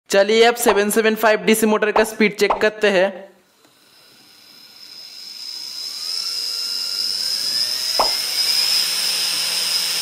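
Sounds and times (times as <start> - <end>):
electric motor whine: 3.6 - 10.0.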